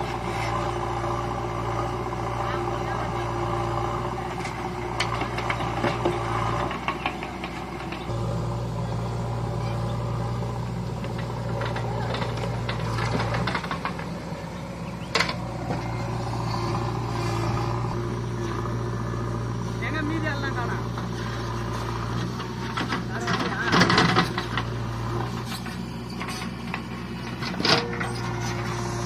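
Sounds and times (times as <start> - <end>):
diesel engines idling: 0.0 - 29.0
soil and stones clattering: 10.9 - 17.9, 22.1 - 29.0.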